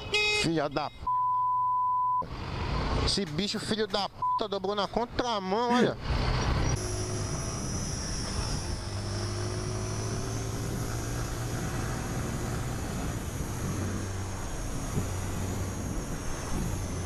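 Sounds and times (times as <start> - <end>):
road and wind noise: 0.0 - 17.0
thin high whine: 6.8 - 11.2.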